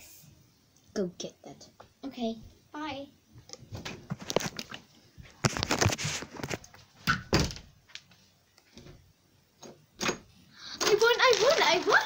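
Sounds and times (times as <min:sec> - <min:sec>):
door handling noise: 0:07.0 - 0:07.7
door knocks and thuds: 0:07.1 - 0:07.7.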